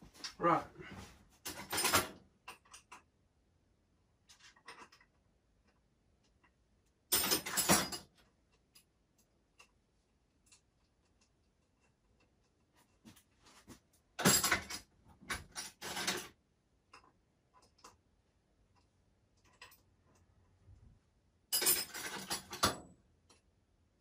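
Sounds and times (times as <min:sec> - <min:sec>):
small parts clicking and clinking: 0:01.4 - 0:03.1, 0:04.3 - 0:09.8, 0:18.7 - 0:20.6, 0:21.5 - 0:23.5.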